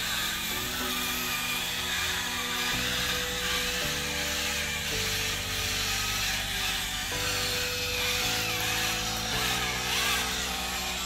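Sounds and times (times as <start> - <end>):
background music chords: 0.0 - 11.0
small motors whining: 0.0 - 11.0.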